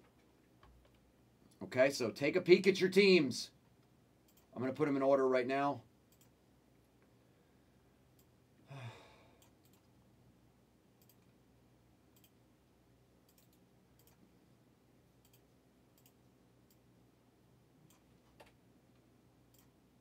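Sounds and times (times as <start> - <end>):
person sighing: 8.6 - 9.4.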